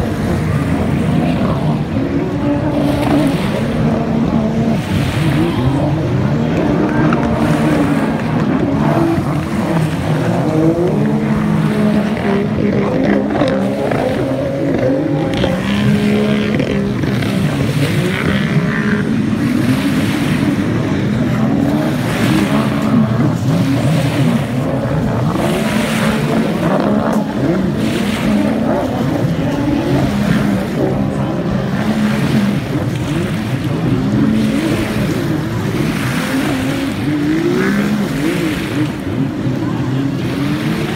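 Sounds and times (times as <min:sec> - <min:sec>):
personal watercraft engines racing: 0:00.0 - 0:40.9.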